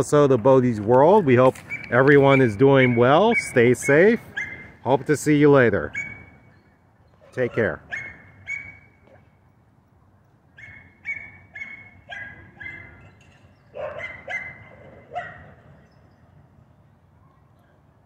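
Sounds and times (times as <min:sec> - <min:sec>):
dog barking: 0:04.3 - 0:04.6, 0:07.5 - 0:08.8, 0:10.6 - 0:13.0, 0:13.8 - 0:15.6.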